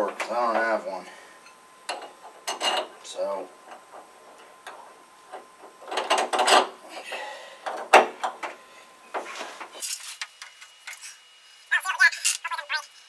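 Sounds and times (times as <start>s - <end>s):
metal tools clanking and scraping: 1.4s - 3.0s, 3.7s - 8.5s.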